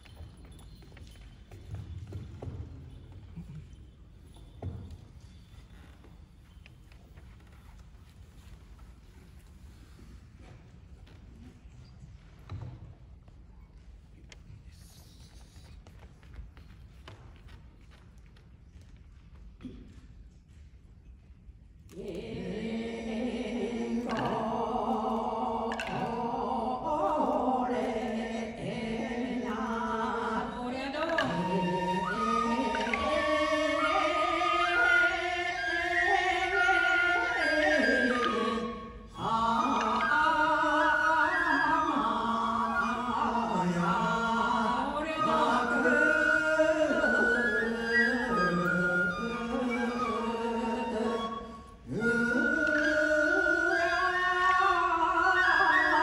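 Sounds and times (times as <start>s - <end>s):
folk singing: 21.9s - 56.0s.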